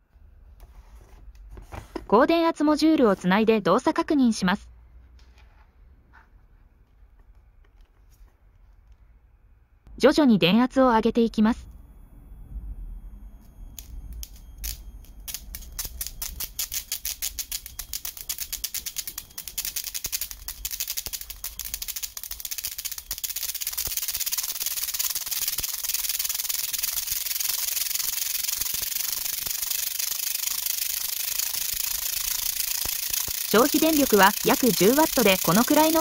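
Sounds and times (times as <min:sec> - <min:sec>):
sharp electric ticks: 0:13.1 - 0:36.0
electrostatic motor crackling hiss: 0:13.8 - 0:36.0.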